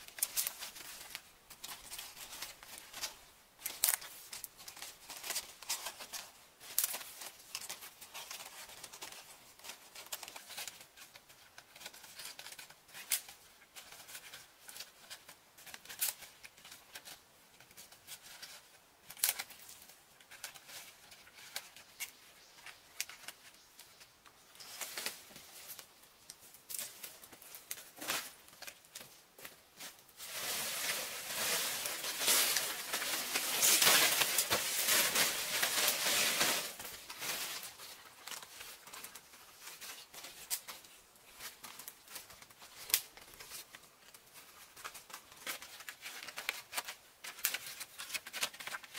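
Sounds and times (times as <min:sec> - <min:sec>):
palm leaflets rustling: 0:00.0 - 0:48.9
palm frond rustling through undergrowth: 0:26.7 - 0:48.9.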